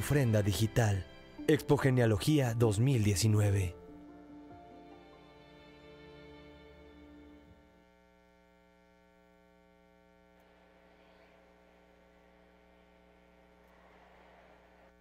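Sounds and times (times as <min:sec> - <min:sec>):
music: 0:00.0 - 0:08.0
electrical mains hum: 0:00.0 - 0:15.0.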